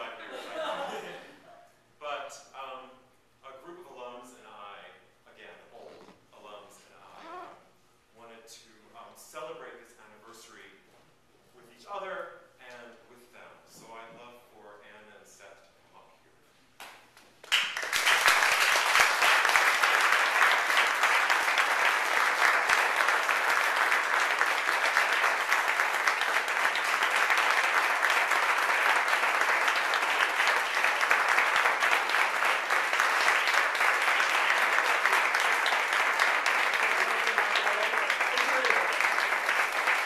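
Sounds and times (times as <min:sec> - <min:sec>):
crowd applauding: 0:17.4 - 0:40.0.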